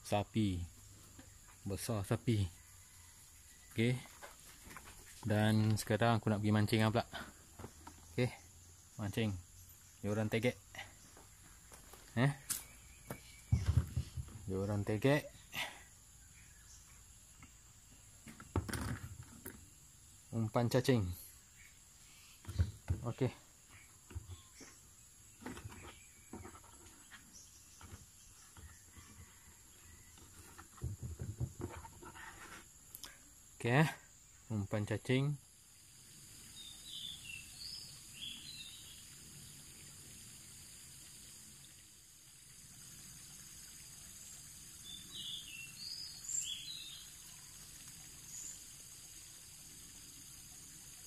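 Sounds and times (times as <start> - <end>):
falling bird calls: 6.7 - 19.7, 20.8 - 33.2.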